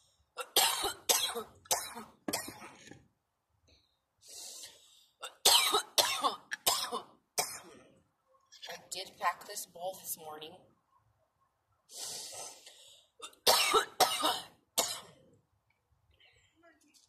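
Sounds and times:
woman coughing: 0:00.4 - 0:02.6, 0:05.2 - 0:07.7, 0:13.2 - 0:15.1.

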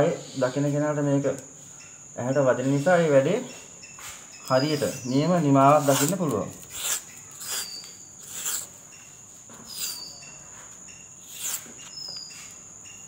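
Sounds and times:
insect drone with chirps: 0:00.0 - 0:13.0
masking tape pulled off roll: 0:05.8 - 0:08.7.

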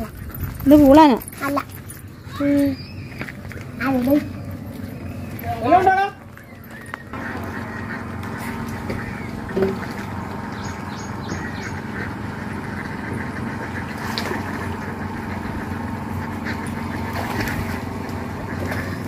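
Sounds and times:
low motor hum: 0:00.0 - 0:19.0
ducks quacking: 0:05.2 - 0:19.0.

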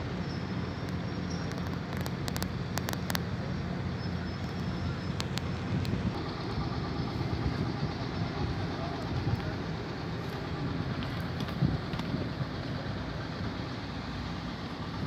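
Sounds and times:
engines rumbling: 0:00.0 - 0:15.0
faint clicks: 0:00.8 - 0:03.3, 0:04.4 - 0:06.0.

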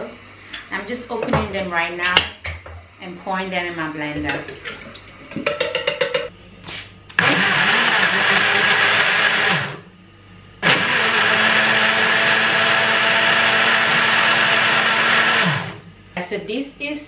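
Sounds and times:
blender running: 0:07.1 - 0:09.9, 0:10.6 - 0:15.9.

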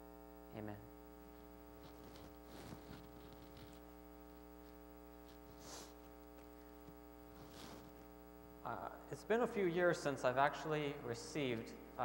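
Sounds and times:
electrical mains hum: 0:00.0 - 0:12.0
faint rustles: 0:01.4 - 0:08.2.

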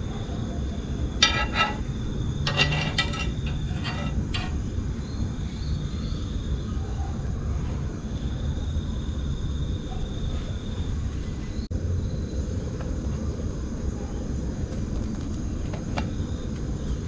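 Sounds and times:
spatula scraping cast iron pan: 0:01.2 - 0:04.8.

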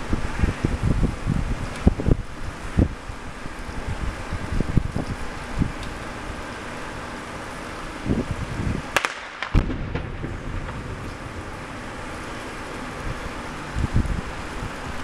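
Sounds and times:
wind on microphone: 0:00.0 - 0:06.5, 0:07.9 - 0:15.0
rock blast crack: 0:09.0 - 0:11.6.

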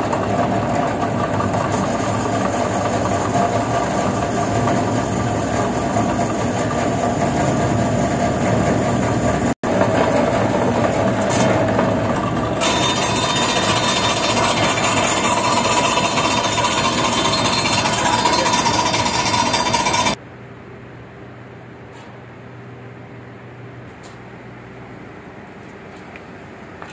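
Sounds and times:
cutting machine running: 0:00.0 - 0:20.2.

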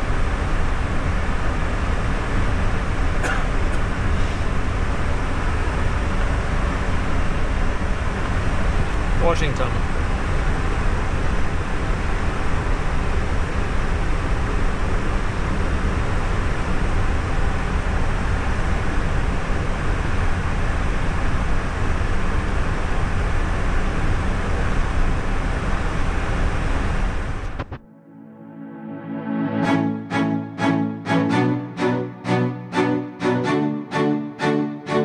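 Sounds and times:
quiet music: 0:27.8 - 0:35.0.

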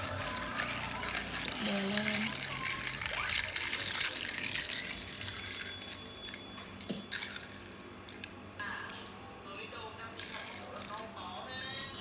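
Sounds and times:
ice clinking in a glass: 0:00.0 - 0:07.6
high ringing tone: 0:04.6 - 0:07.8.

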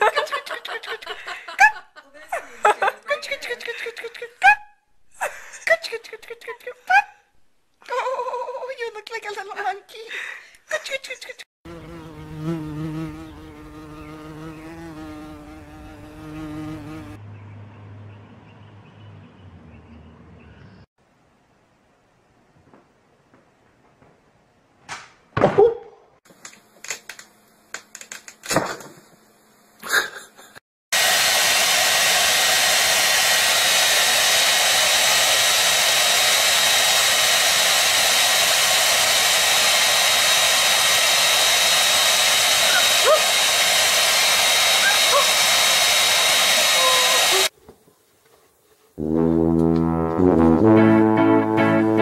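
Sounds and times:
hair dryer blowing: 0:30.9 - 0:47.5.

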